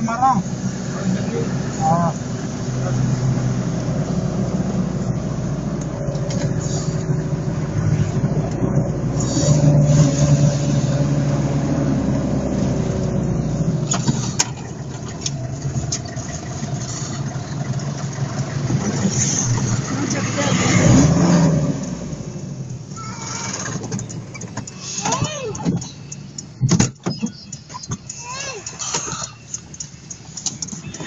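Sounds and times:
car engine and road noise: 0:00.0 - 0:31.0
clicks: 0:23.5 - 0:31.0.

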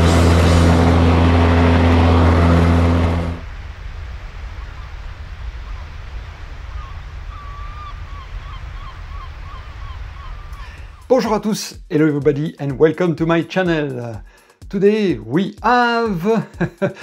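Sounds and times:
lawn mower running: 0:00.0 - 0:03.5
steady rushing background: 0:00.0 - 0:07.2
short wavering bird calls: 0:06.6 - 0:11.1.

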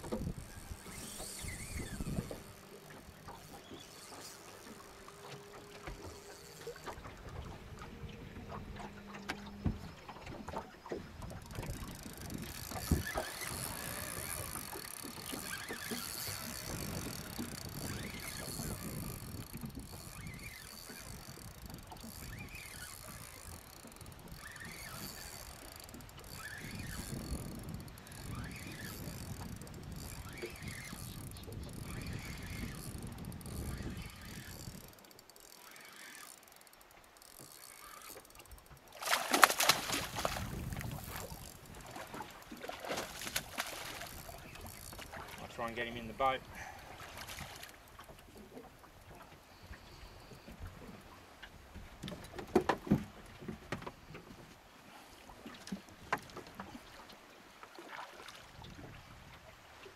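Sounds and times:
water around boat: 0:00.0 - 0:59.9
wind: 0:00.0 - 0:59.9
fish splashing at surface: 0:39.0 - 0:40.6.

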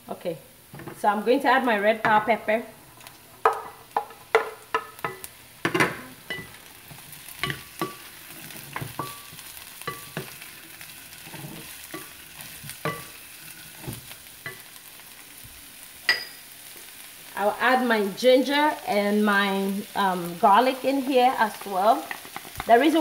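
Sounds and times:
vegetables sizzling in a pan: 0:00.0 - 0:23.0
spatula knocking and scraping pan: 0:03.4 - 0:10.4, 0:11.2 - 0:14.7.

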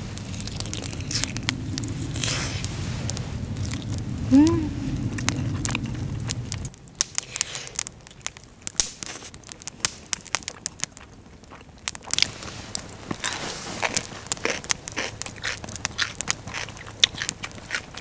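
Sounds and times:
crunching fried chicken: 0:00.0 - 0:04.2, 0:04.9 - 0:18.0.

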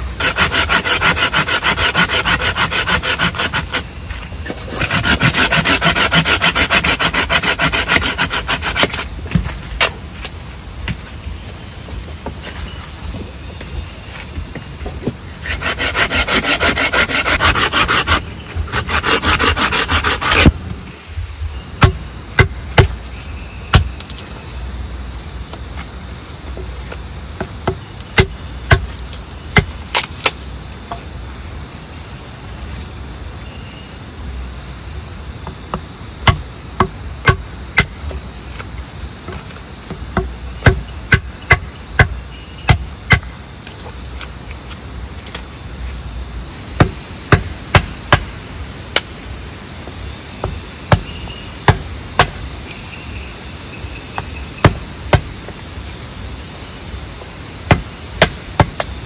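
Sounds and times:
hand saw cutting wood: 0:00.2 - 0:03.9, 0:04.5 - 0:09.1, 0:15.4 - 0:20.5
hatchet chopping branch: 0:27.6 - 0:30.4, 0:50.4 - 0:52.4.

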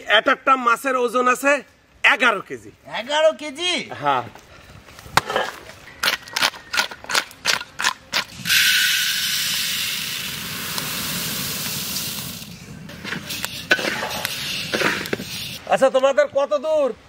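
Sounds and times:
metal spatula scraping wok: 0:12.9 - 0:15.6.

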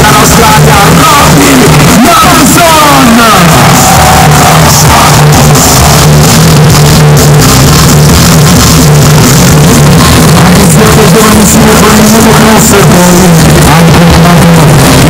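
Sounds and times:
rock-electronic music over pa: 0:00.0 - 0:15.0.

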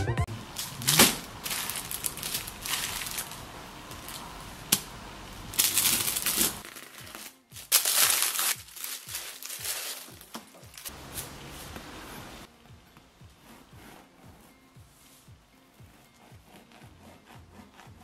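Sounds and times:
background music: 0:00.0 - 0:03.4, 0:05.6 - 0:18.0
plastic bag crinkling: 0:00.6 - 0:04.3, 0:05.6 - 0:10.9.

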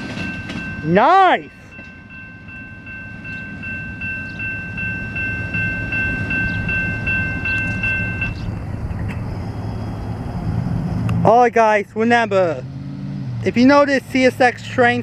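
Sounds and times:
railroad crossing bell ringing: 0:00.0 - 0:08.9
low rumble: 0:01.5 - 0:11.6.

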